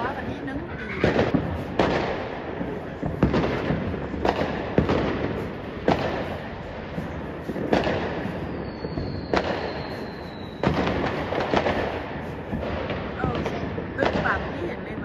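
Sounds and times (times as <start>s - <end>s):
fireworks rumble and crackle: 0.0s - 15.0s
loud firework bangs: 0.0s - 15.0s
faint high whistle: 8.5s - 10.6s.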